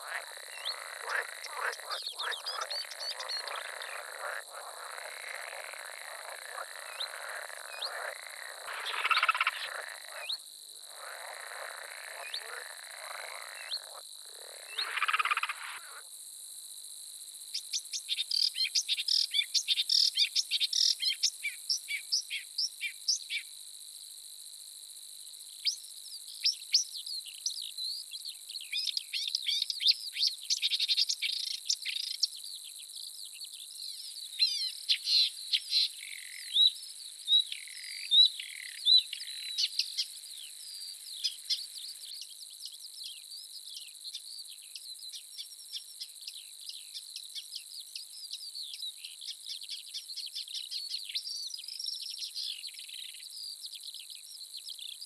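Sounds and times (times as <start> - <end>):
songbirds chirping and trilling: 0.0 - 16.0
high-pitched insect drone: 0.0 - 16.1.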